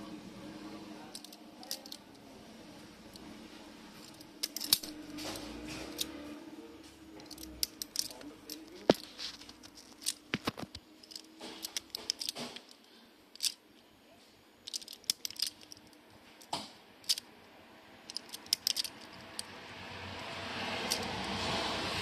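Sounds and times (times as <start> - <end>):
wire rustling: 1.1 - 13.6, 14.6 - 17.3, 18.1 - 19.5.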